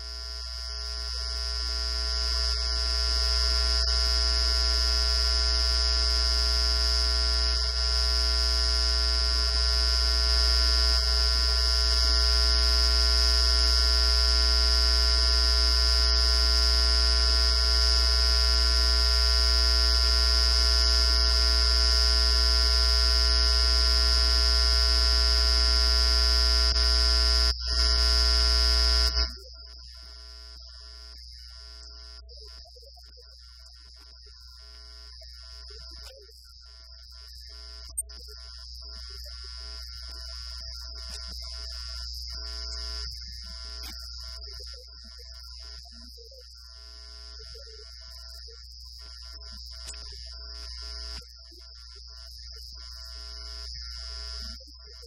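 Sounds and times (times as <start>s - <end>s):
electrical hum and buzz: 0.0s - 32.7s, 33.9s - 46.2s, 52.6s - 54.7s.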